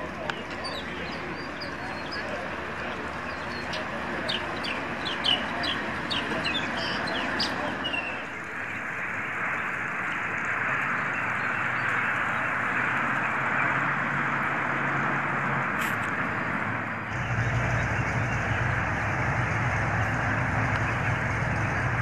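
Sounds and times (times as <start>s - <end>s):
car engine running: 9.3s - 22.0s.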